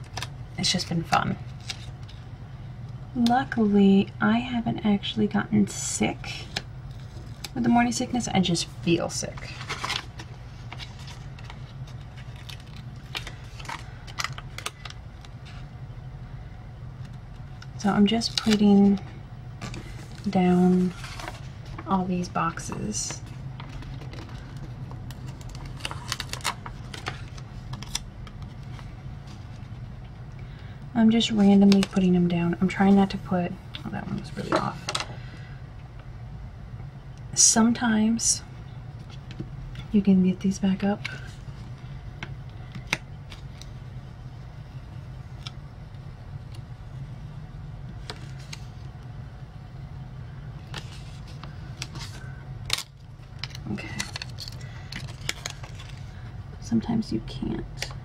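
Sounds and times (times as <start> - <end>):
steady low hum: 0.0 - 58.0
paper rustling: 22.6 - 29.8, 50.7 - 52.8, 53.4 - 56.2
crisp little clicks and crackles: 50.7 - 56.2.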